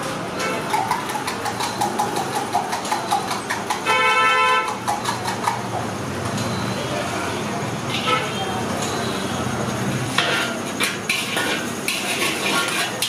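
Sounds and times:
street traffic: 0.0 - 13.0
steel utensils clinking: 0.4 - 4.0, 10.1 - 13.0
vehicle horn toot: 3.8 - 4.8, 7.9 - 9.5.

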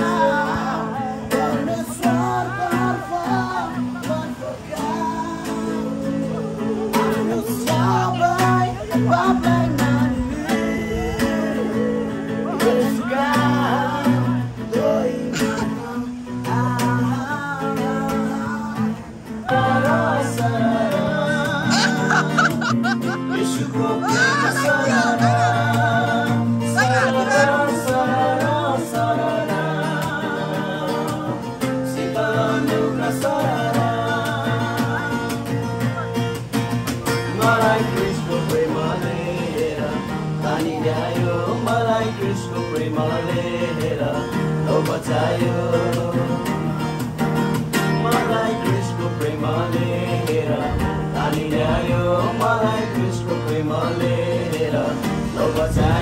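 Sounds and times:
person singing: 0.0 - 36.3, 36.9 - 47.2, 47.8 - 56.0
guitar: 0.0 - 56.0.

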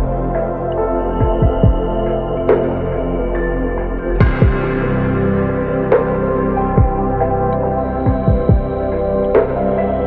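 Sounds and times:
low bass thumps: 1.1 - 3.5, 4.2 - 9.9.

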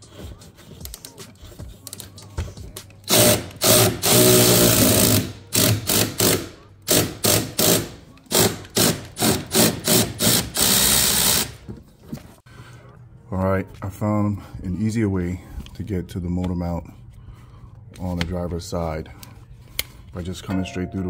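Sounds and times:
power tool spinning a fastener: 3.1 - 11.6.

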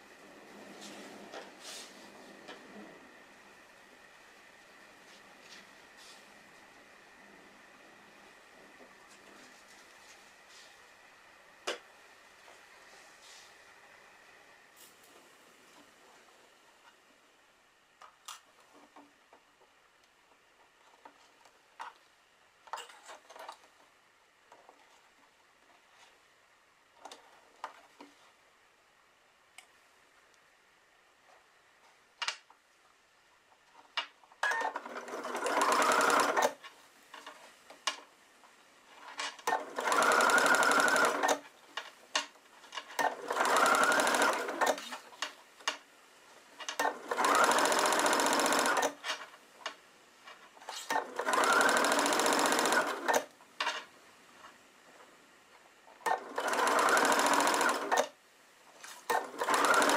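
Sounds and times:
sewing machine stitching: 34.4 - 36.6, 39.4 - 41.5, 42.8 - 45.2, 46.7 - 49.2, 50.7 - 53.3, 56.0 - 58.2, 58.8 - 59.9.

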